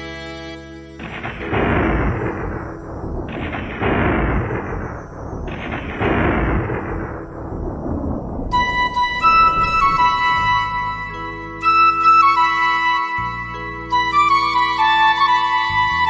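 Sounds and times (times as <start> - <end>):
music: 0.0 - 16.0
explosion-like blasts: 1.0 - 11.3.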